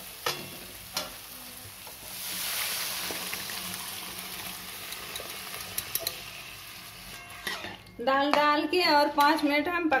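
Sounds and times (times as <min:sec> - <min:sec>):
lentils sizzling in hot oil: 0:00.0 - 0:07.8.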